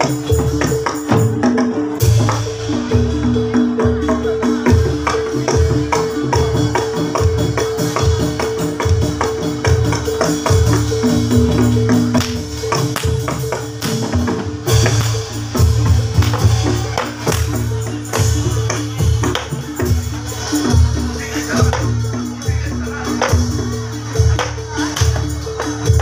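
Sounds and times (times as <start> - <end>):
drums: 0.0 - 26.0
gamelan ensemble playing: 0.0 - 26.0.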